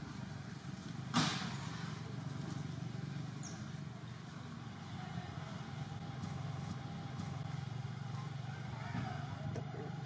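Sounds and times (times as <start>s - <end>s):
motor engine humming: 2.0s - 10.0s.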